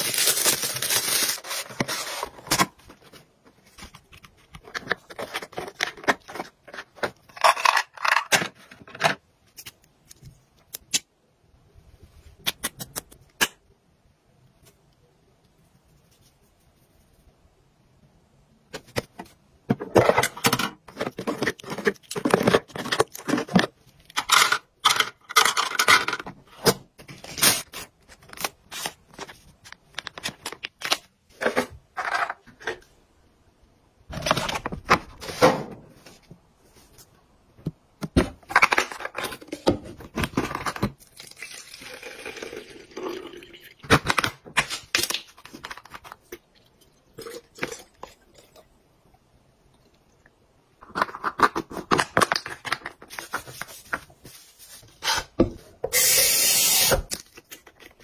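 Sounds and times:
tissue rustling and tearing: 0:00.0 - 0:02.4.

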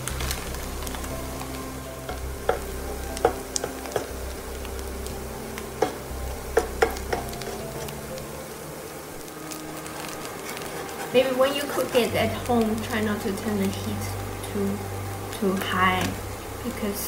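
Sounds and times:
noodles and onions sizzling in pan: 0:00.0 - 0:17.0
spatula knocking and scraping pan: 0:05.8 - 0:07.9.

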